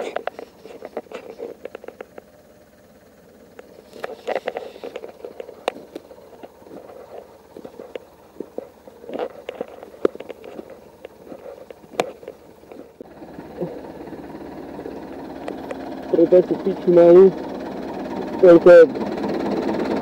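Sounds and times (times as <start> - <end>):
footsteps crunching over twigs: 0.0 - 2.3, 3.6 - 13.0
tractor engine running: 0.0 - 20.0
twigs snapping: 3.5 - 13.0.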